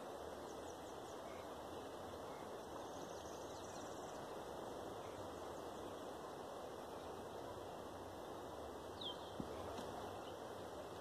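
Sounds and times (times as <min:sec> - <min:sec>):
outdoor background hiss: 0:00.0 - 0:11.0
faint high bird chirps: 0:08.3 - 0:10.5.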